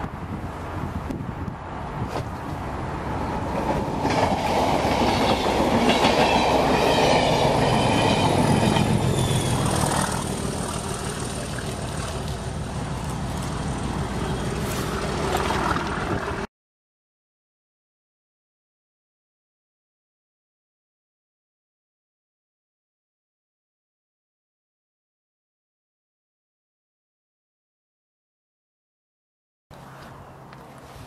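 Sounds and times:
train wheels clacking over rails: 3.5s - 11.3s.

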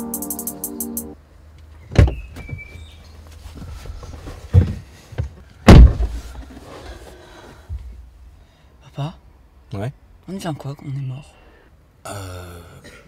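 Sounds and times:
electronic music: 0.0s - 1.2s
car door opening: 1.9s - 2.8s
car door shutting: 1.9s - 2.8s, 5.6s - 6.4s
knocks and thumps: 4.5s - 6.4s.

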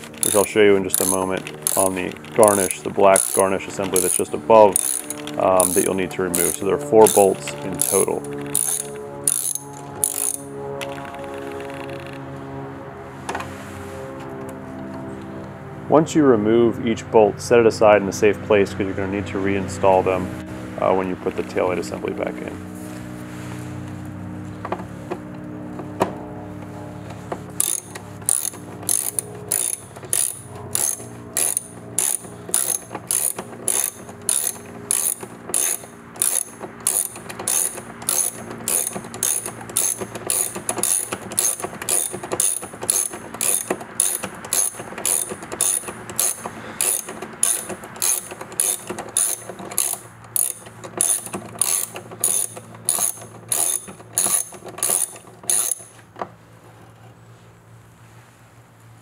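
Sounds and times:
socket wrench ratchet clicking: 0.0s - 11.0s, 27.6s - 56.0s.

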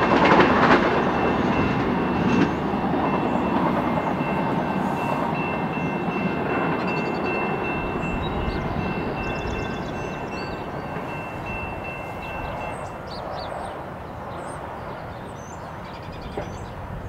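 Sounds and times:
cars driving over tracks: 0.0s - 13.8s
train rumble: 0.0s - 17.0s
birds chirping: 0.1s - 17.0s.

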